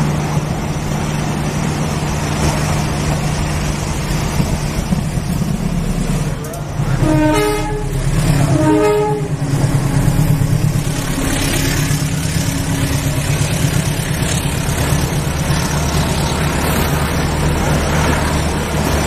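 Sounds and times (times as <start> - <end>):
locomotive engine low rumble: 0.0 - 19.0
locomotive horn blast: 6.4 - 12.4.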